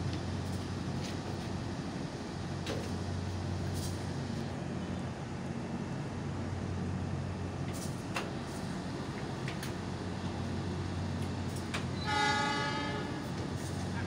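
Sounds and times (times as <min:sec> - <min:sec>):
train low hum: 0:00.0 - 0:14.0.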